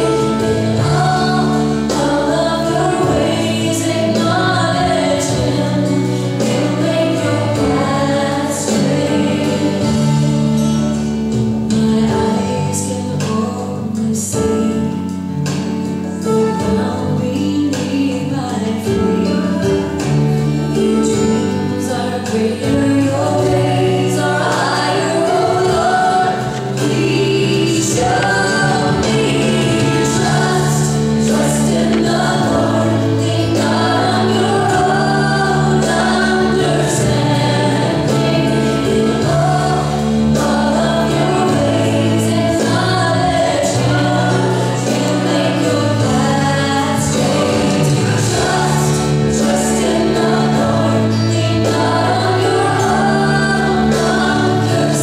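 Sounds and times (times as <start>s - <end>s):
choir singing: 0.0s - 13.6s, 18.8s - 55.0s
long held bass notes: 16.6s - 55.0s.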